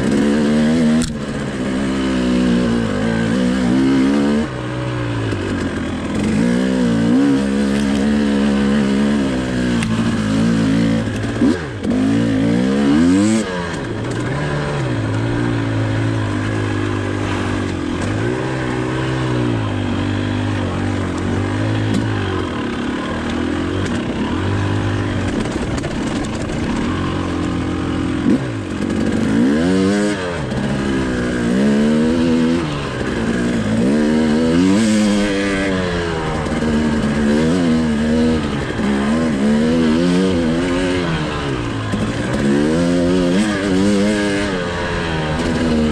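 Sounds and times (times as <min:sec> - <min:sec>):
two-stroke motorbike engine revving: 0:00.0 - 0:45.9.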